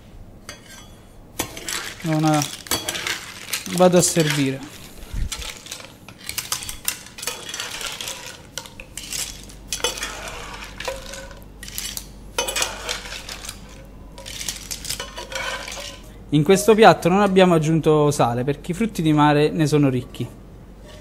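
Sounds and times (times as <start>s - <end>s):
metal ladle scraping a pan: 0.5s - 16.1s.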